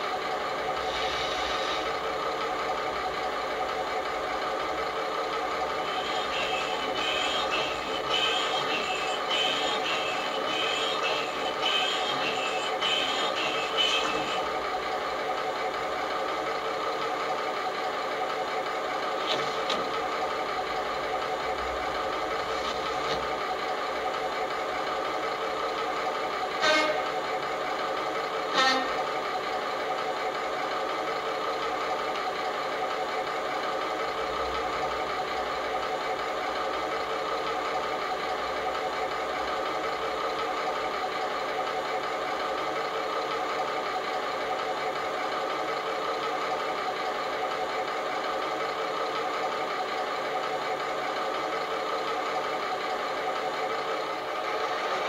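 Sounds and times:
diesel engine idling: 0:00.0 - 0:55.0
short horn toots: 0:26.6 - 0:27.1, 0:28.5 - 0:29.0.

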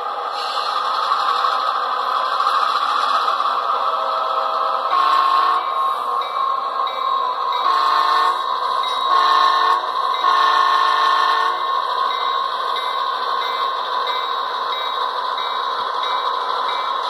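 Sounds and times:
diesel engine sound: 0:00.0 - 0:17.0
model locomotive horn blasts: 0:04.9 - 0:05.8, 0:07.6 - 0:08.5, 0:09.1 - 0:11.7.

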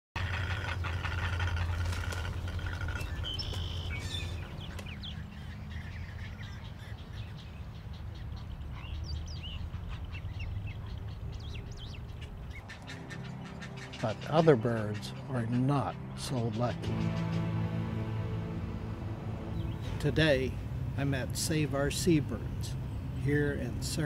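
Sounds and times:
birds calling and chirping: 0:00.2 - 0:24.0
low rumble: 0:15.9 - 0:23.2.

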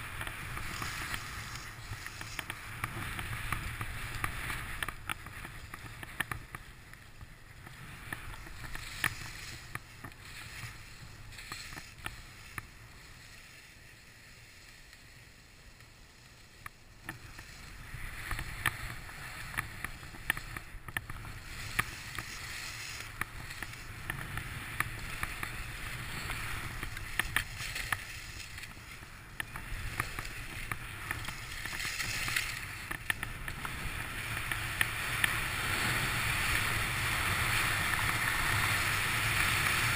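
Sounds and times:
skis sliding on snow: 0:00.0 - 0:39.9
ticks and scrapes: 0:00.2 - 0:13.4, 0:16.6 - 0:36.7
wind rumble on microphone: 0:17.0 - 0:39.9.

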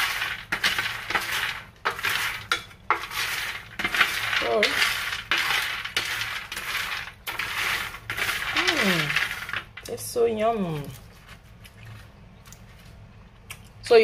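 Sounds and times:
peanuts rattling on metal tray: 0:00.0 - 0:11.2.

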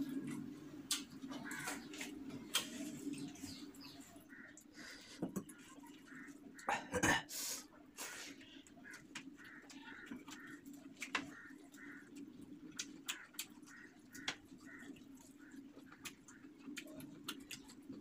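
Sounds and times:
wet chewing and lip-smacking: 0:08.6 - 0:18.0.

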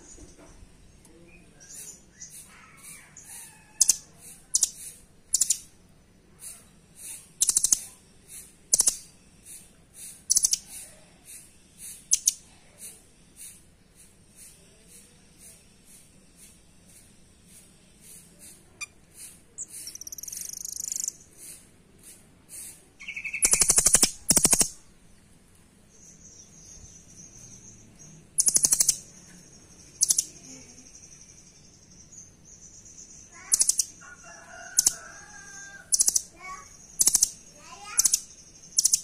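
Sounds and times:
songbird singing: 0:00.0 - 0:21.7, 0:22.5 - 0:39.0
bird rattling pulses: 0:06.4 - 0:24.8, 0:28.4 - 0:29.2, 0:33.4 - 0:39.0.

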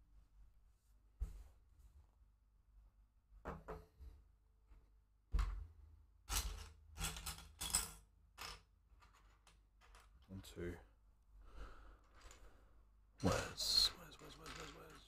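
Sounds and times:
plastic bricks clattering: 0:06.3 - 0:10.3, 0:14.2 - 0:15.0.

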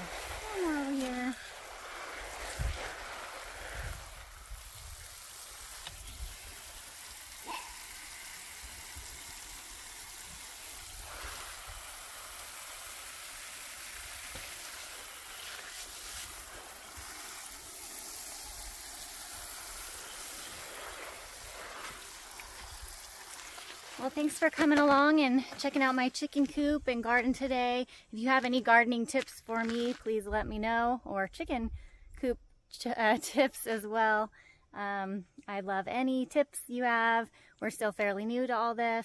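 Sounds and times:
water spraying from hose: 0:00.0 - 0:25.2.

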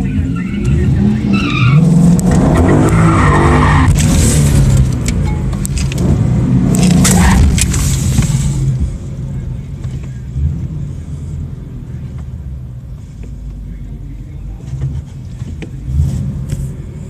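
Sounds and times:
car engine revving: 0:00.0 - 0:12.8, 0:13.4 - 0:17.0
tyres squealing: 0:00.3 - 0:03.9.

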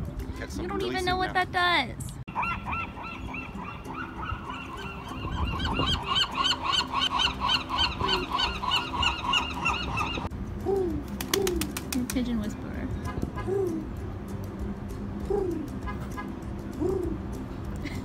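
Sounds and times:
gulls yelping calls: 0:02.3 - 0:10.3
pigeons cooing: 0:02.3 - 0:11.9, 0:15.2 - 0:17.4.

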